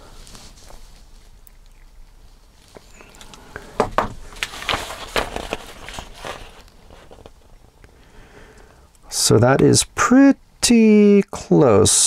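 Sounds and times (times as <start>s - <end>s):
paper crackling: 4.2s - 7.6s.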